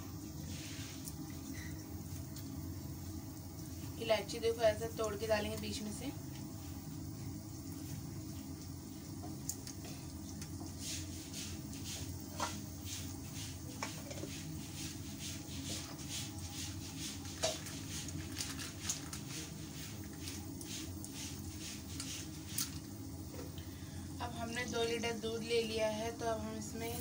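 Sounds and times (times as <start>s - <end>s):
spices sizzling in hot oil: 0.0s - 27.0s
steady low hum: 0.0s - 27.0s
small crackles: 7.8s - 10.6s.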